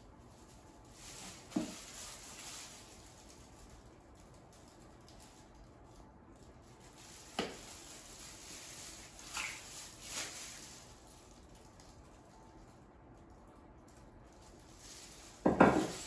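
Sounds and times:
spice shaker knocking on countertop: 15.4 - 16.0.

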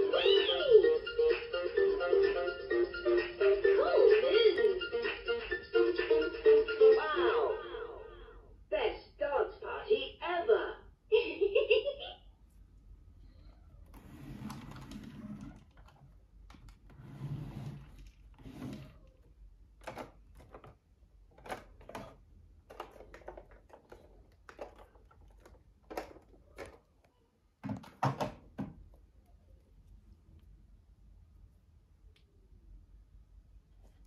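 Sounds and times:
plastic toy parts clicking and knocking: 19.8 - 26.9.

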